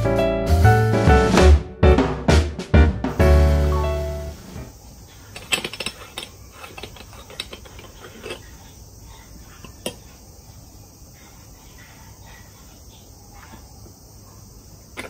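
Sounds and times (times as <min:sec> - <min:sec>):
metal pot clicks and knocks: 0:05.3 - 0:08.5.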